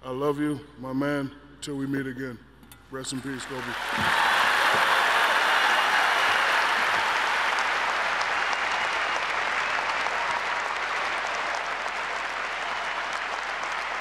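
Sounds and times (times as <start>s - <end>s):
audience applauding: 3.3s - 14.0s.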